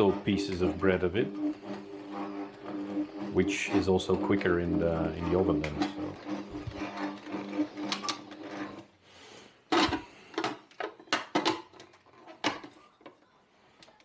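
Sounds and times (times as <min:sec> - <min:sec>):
stand mixer motor running: 0:00.0 - 0:08.9.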